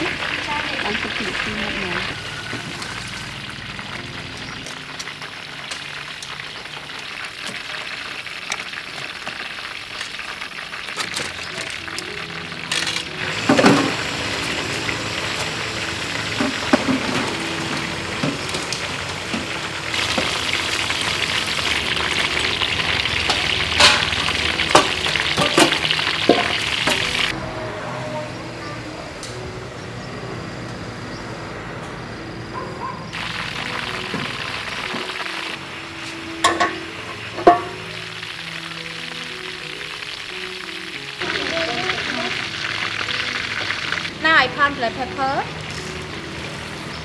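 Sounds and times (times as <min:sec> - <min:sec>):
food deep-frying in hot oil: 0:00.0 - 0:27.4, 0:33.1 - 0:47.0.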